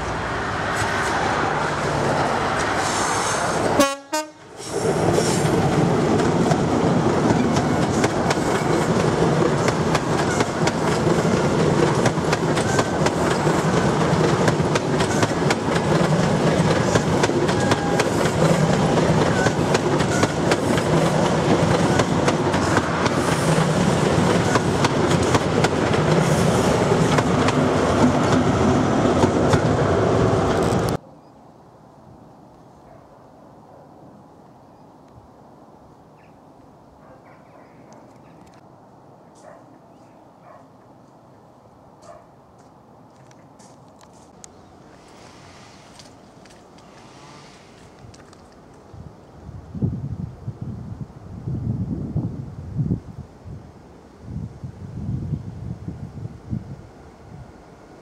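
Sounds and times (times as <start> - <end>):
diesel train engine: 0.0 - 31.0
train wheels clattering on rails: 4.7 - 31.0.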